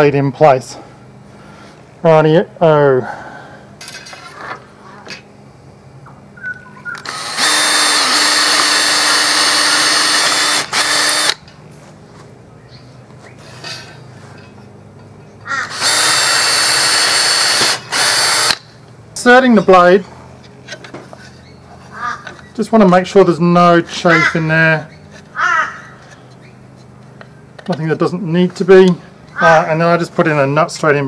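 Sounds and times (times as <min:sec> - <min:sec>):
cordless drill boring wood: 0:07.0 - 0:11.4, 0:15.7 - 0:18.6.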